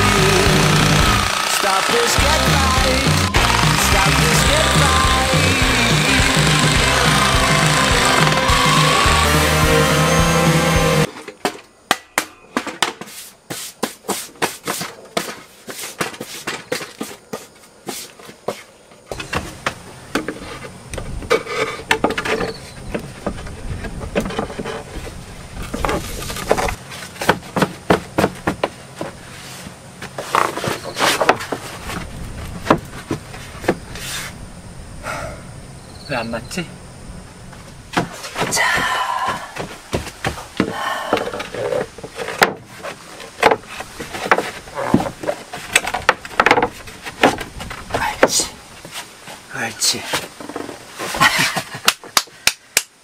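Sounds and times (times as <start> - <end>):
electric jigsaw cutting plywood: 0.0 - 11.1
wooden panels knocking and clattering: 21.0 - 25.1, 39.6 - 42.7, 43.4 - 48.5.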